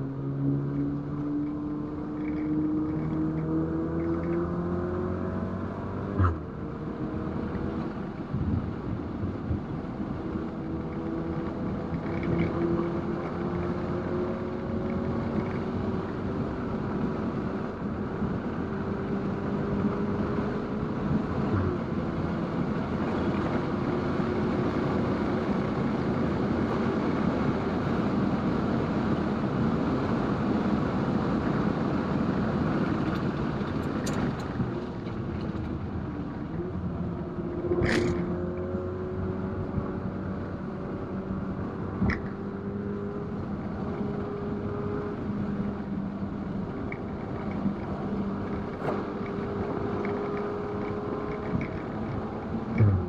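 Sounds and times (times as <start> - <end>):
road and wind noise: 0.0 - 53.0
car engine revving: 31.3 - 53.0.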